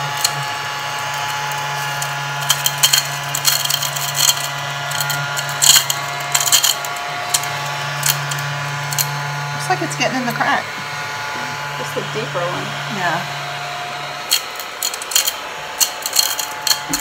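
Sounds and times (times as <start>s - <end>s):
crumbs clicking and rattling: 0.0s - 9.2s, 14.3s - 17.0s
mini vacuum whirring: 0.0s - 17.0s.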